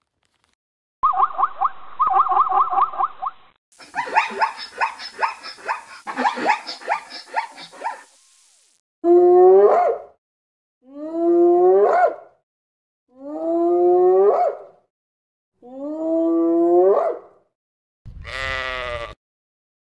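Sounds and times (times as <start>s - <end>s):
zebras barking: 3.8s - 8.1s.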